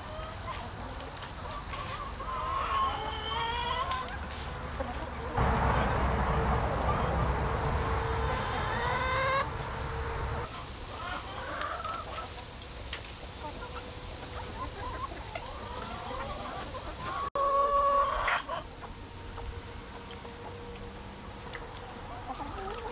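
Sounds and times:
chickens clucking: 0:00.0 - 0:22.9
loud drawn-out chicken call: 0:05.4 - 0:11.8.

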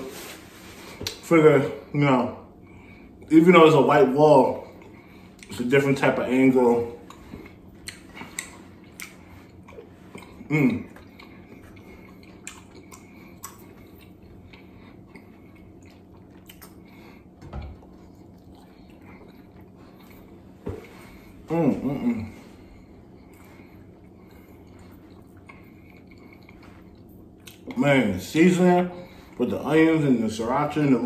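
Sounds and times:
chewing: 0:06.9 - 0:27.8
person humming: 0:21.5 - 0:22.4.

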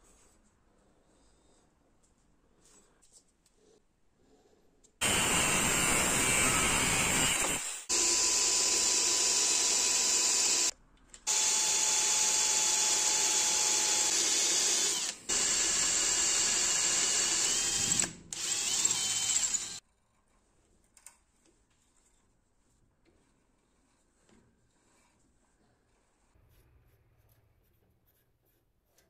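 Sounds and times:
electric drill boring into steel: 0:05.0 - 0:10.7, 0:11.3 - 0:19.8.

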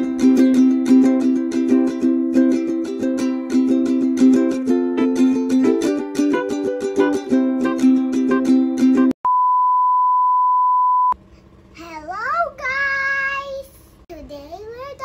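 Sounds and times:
plucked-string intro music: 0:00.0 - 0:09.2
steady test tone beep: 0:09.2 - 0:11.2
child calling out a greeting: 0:11.8 - 0:15.0.

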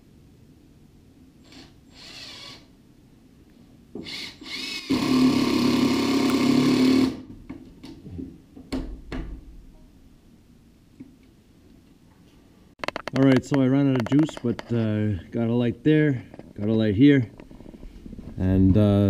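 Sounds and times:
drill driving screw into wood: 0:01.4 - 0:02.7, 0:04.0 - 0:07.3.

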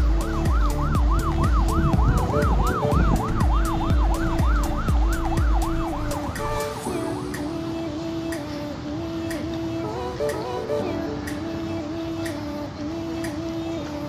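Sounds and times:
siren-like sweeping sound: 0:00.0 - 0:07.3
dance music with synth: 0:00.0 - 0:07.4.

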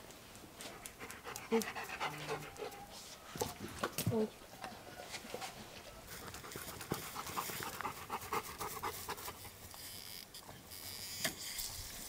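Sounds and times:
dog panting: 0:00.6 - 0:02.9, 0:06.1 - 0:09.4.

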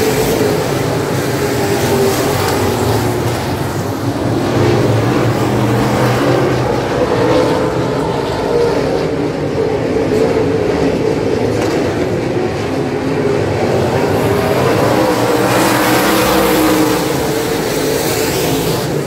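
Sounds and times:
race car engines droning: 0:00.0 - 0:19.0.

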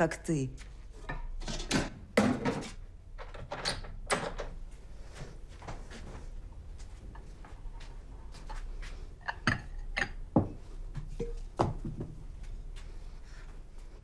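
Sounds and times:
glass and bottle clinking on table: 0:11.2 - 0:11.4.

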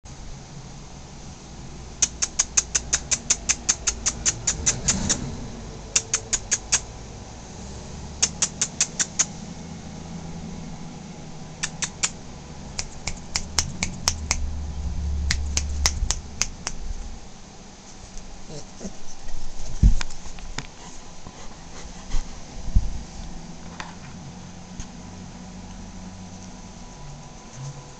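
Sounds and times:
rapid sharp clicks: 0:02.0 - 0:05.2, 0:05.9 - 0:06.9, 0:08.2 - 0:09.3, 0:11.6 - 0:14.5, 0:15.3 - 0:16.8
low rumble: 0:04.8 - 0:06.0, 0:12.3 - 0:17.5.

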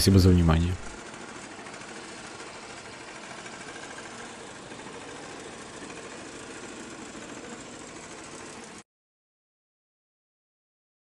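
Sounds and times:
electric scooter motor whirring: 0:00.9 - 0:08.8.

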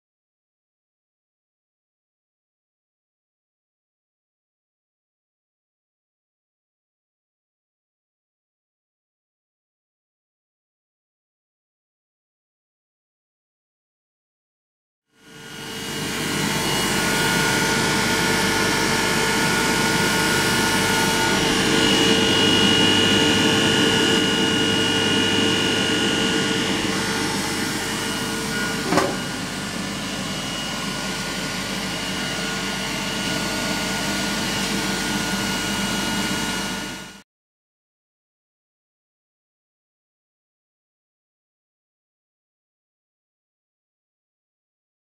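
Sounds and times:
generator hum and whine: 0:15.2 - 0:37.2.

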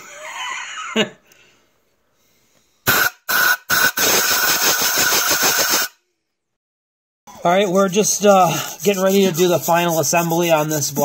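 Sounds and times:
compressed air blasts hissing: 0:02.8 - 0:05.9.

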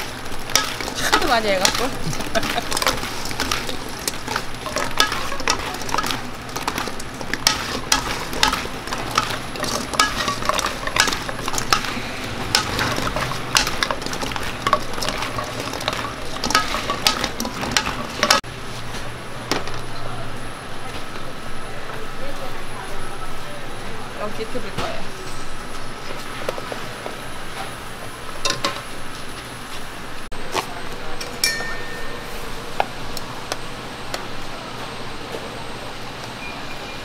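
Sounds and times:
frying sizzle: 0:00.0 - 0:20.0
metal utensil scraping pan: 0:00.5 - 0:18.4.

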